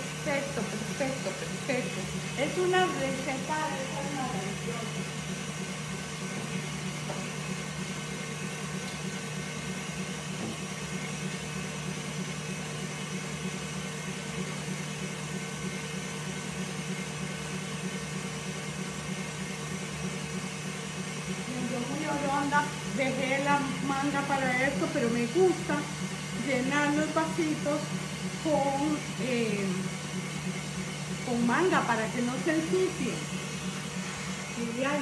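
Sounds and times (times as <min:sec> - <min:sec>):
stand mixer whisking: 0:00.0 - 0:35.0.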